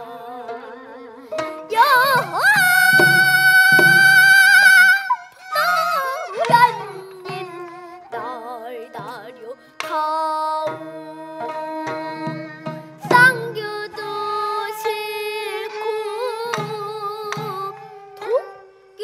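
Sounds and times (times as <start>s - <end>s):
girl singing: 0.0s - 19.0s
traditional instrumental accompaniment: 0.0s - 19.0s
drum strokes: 1.4s - 8.2s, 10.7s - 18.3s.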